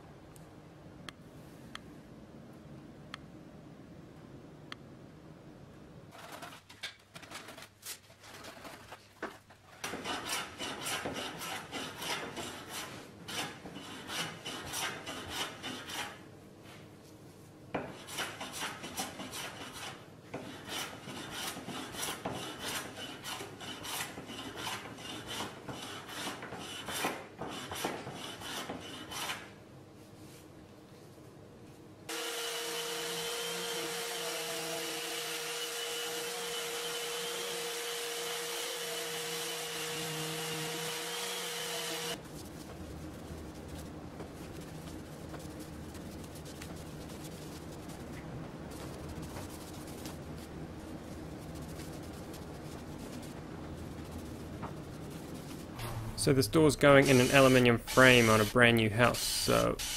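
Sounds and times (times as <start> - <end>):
sanding block rasping on wood: 9.9 - 16.2, 17.9 - 29.4, 57.1 - 58.5.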